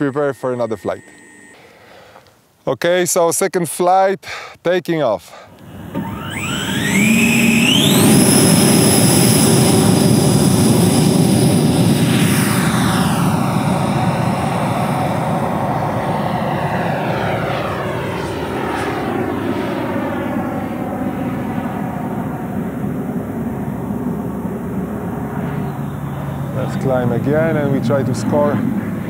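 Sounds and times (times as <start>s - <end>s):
ducted fan whine and air rush: 5.5s - 29.0s.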